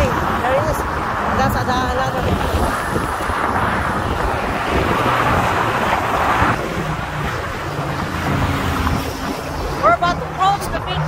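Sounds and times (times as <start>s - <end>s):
road traffic: 0.0s - 11.0s
strong wind on microphone: 0.0s - 11.0s.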